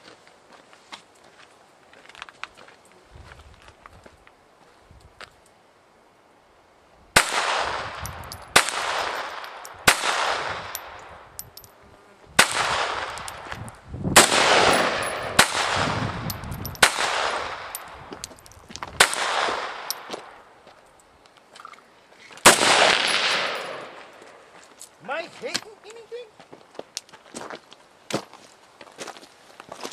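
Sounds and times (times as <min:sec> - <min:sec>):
rifle shots with rolling echo: 0:07.2 - 0:10.9, 0:14.2 - 0:16.0, 0:16.7 - 0:18.0, 0:19.0 - 0:20.1, 0:22.5 - 0:24.2.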